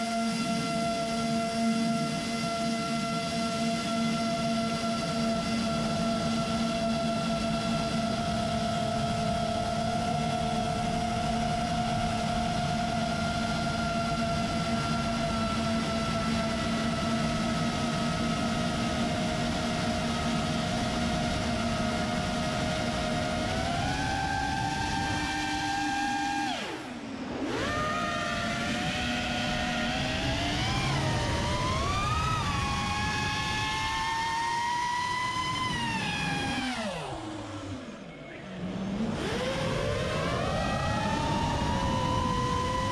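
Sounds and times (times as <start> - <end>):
drone motors whining: 0.0 - 42.9.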